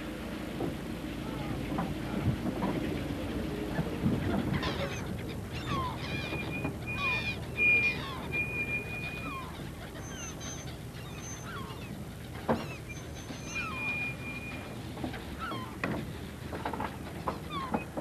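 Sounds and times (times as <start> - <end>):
boat engine humming: 0.0 - 18.0
gulls calling: 0.3 - 18.0
high whistling tone: 6.4 - 10.6, 12.9 - 14.8.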